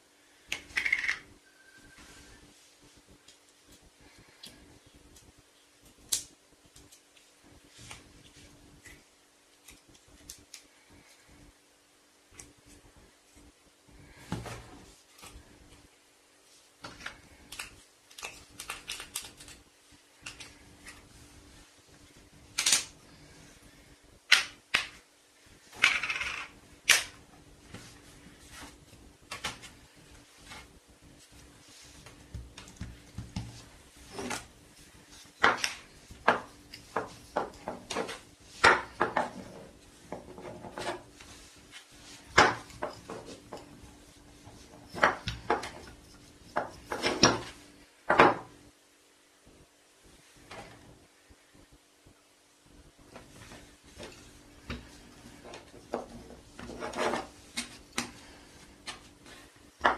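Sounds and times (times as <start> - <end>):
rolling pin rolling over dough: 25.4 - 48.5, 53.0 - 59.9.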